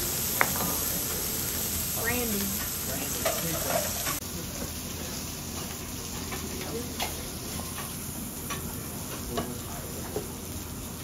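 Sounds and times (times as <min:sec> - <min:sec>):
steaks sizzling on a griddle: 0:00.0 - 0:11.0.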